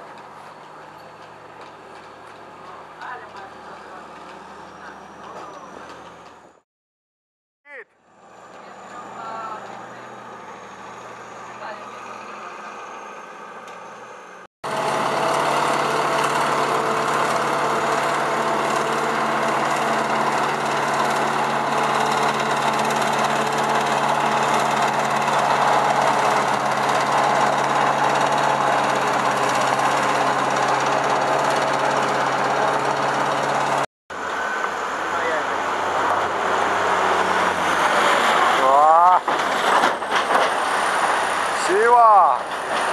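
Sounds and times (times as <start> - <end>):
forage harvester chopping drone: 8.0 - 42.9
tractor engine running: 10.2 - 41.6.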